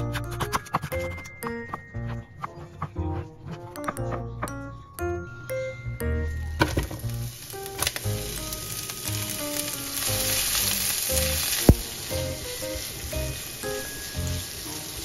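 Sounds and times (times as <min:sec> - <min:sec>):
background music: 0:00.0 - 0:15.0
onions sizzling in oil: 0:06.8 - 0:15.0.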